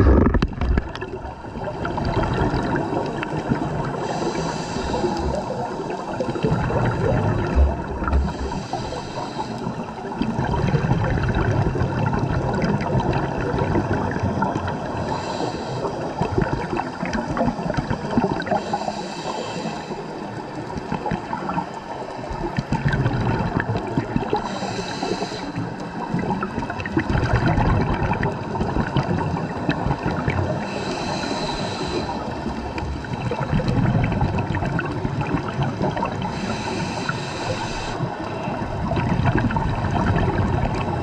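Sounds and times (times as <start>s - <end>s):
bubbles rumbling and gurgling: 0.0s - 41.0s
constant fine crackle: 0.0s - 41.0s
regulator hiss: 4.0s - 5.6s, 8.2s - 9.9s, 18.6s - 20.2s, 24.4s - 25.6s, 30.6s - 32.5s, 36.3s - 38.0s.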